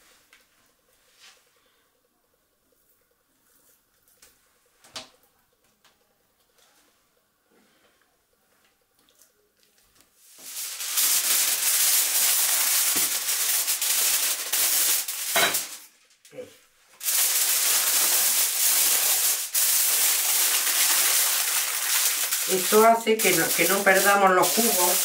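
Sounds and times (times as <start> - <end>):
aluminium foil crinkling: 10.4 - 16.2, 17.0 - 25.0.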